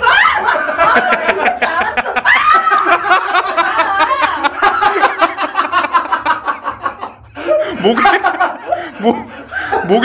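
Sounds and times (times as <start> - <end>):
people laughing hard: 0.0 - 10.0.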